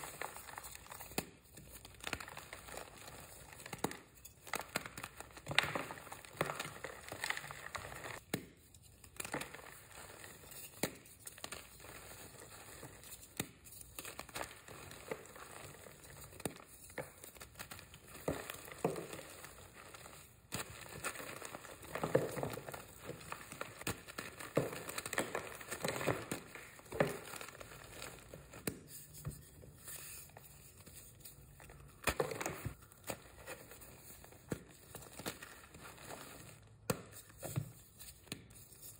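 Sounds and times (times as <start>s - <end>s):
chalk blocks crunching: 0.0s - 8.3s.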